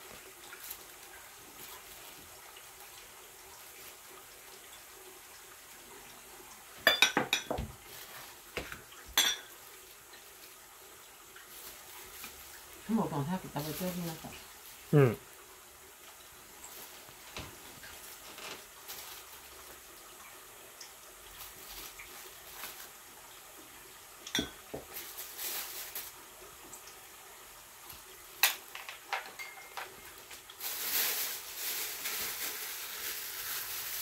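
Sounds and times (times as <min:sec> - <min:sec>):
steady hiss: 0:00.0 - 0:34.0
dishes and utensils clinking: 0:06.8 - 0:07.7, 0:09.1 - 0:09.6, 0:24.3 - 0:24.9, 0:28.4 - 0:30.2.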